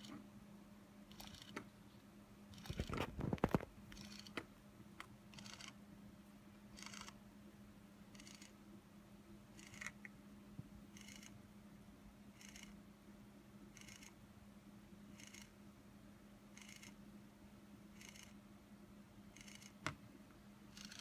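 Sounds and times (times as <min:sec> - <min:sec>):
faint steady hum: 0:00.0 - 0:21.0
small motor whirring: 0:01.1 - 0:01.6.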